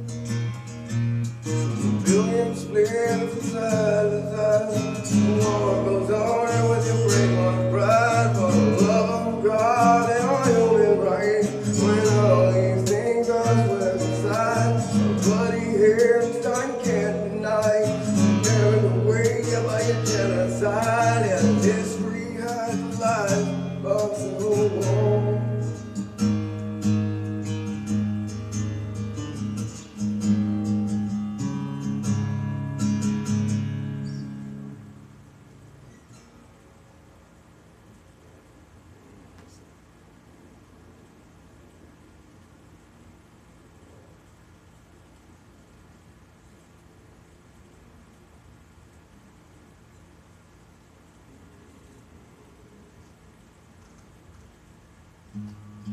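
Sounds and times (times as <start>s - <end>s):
acoustic guitar strumming: 0.0s - 36.6s, 55.3s - 55.9s
man singing through effects: 2.0s - 26.0s.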